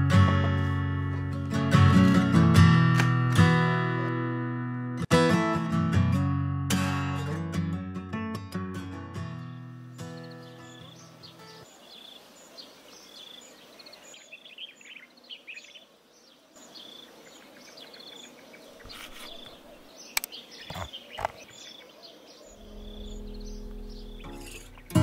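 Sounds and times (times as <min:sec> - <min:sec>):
small birds chirping: 0:09.6 - 0:25.0.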